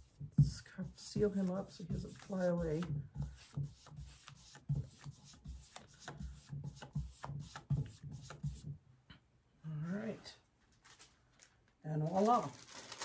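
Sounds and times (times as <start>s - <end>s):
plastic bag crinkling: 10.7s - 13.0s.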